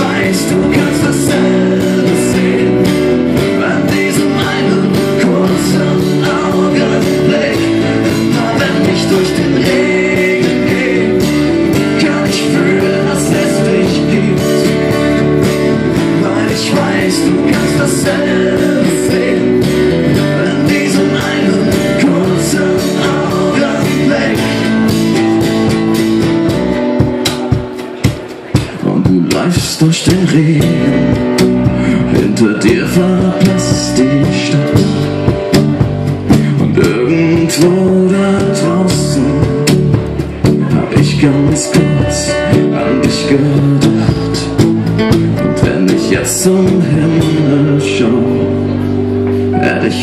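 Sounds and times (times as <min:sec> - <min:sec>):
keyboard: 0:00.0 - 0:50.0
strummed acoustic guitars: 0:00.0 - 0:50.0
percussion hits: 0:21.2 - 0:38.8.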